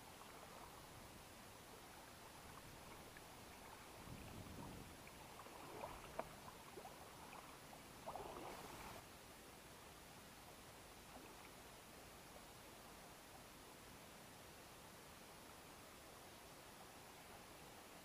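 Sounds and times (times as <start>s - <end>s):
water splashing and sloshing: 1.8s - 9.0s.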